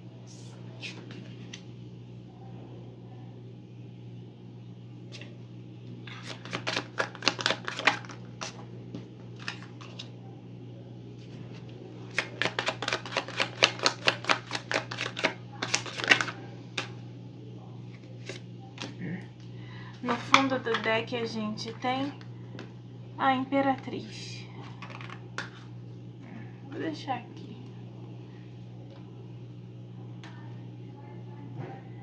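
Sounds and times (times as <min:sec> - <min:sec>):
low steady hum: 0:00.0 - 0:32.0
cards being shuffled: 0:06.0 - 0:08.6, 0:09.4 - 0:10.1, 0:12.1 - 0:16.9.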